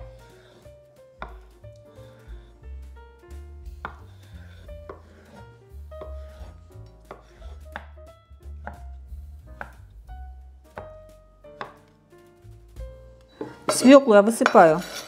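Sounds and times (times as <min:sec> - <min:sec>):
knife chopping on wooden board: 0:01.2 - 0:02.3, 0:03.6 - 0:09.9, 0:10.7 - 0:11.9.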